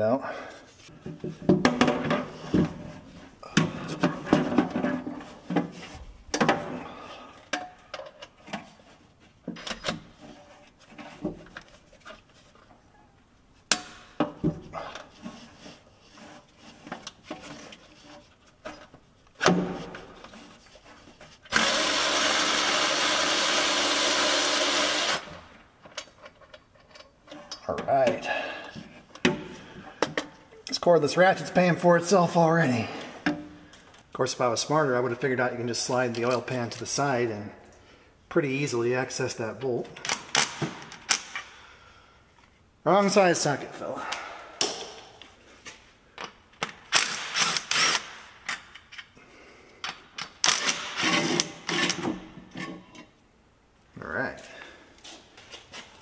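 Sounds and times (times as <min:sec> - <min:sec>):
power ratchet running: 0:21.5 - 0:25.3.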